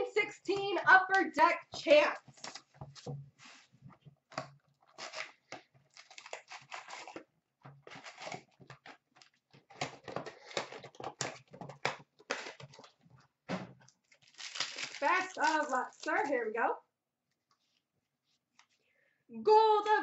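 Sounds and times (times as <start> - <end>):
plastic shrink-wrap crinkling: 13.9 - 16.4.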